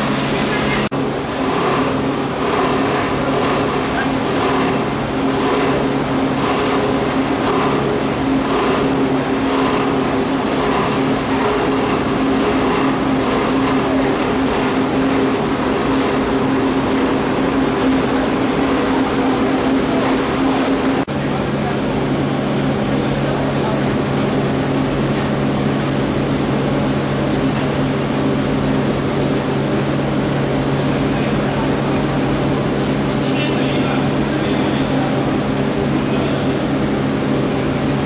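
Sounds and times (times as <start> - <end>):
plastic crushing machine noise: 0.0 - 21.0
low motor hum: 0.0 - 29.4.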